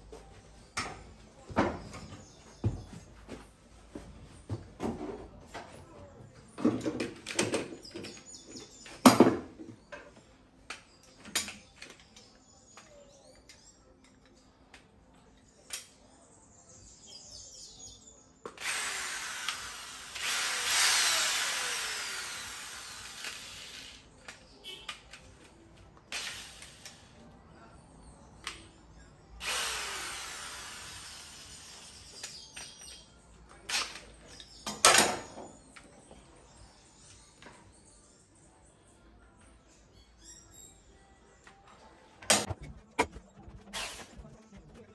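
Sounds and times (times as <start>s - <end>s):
power drill boring sheet metal: 18.6s - 24.0s, 29.4s - 32.1s.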